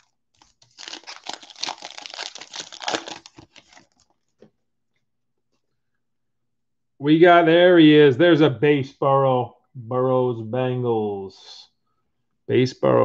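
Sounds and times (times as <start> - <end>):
foil wrapper tearing and crinkling: 0.0 - 4.2.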